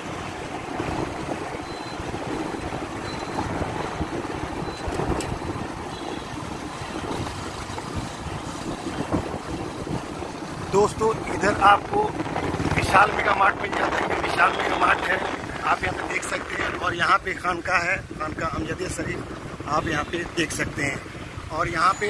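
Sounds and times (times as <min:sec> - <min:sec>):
wind buffeting microphone: 0:00.0 - 0:21.7
traffic rumble: 0:00.0 - 0:22.0.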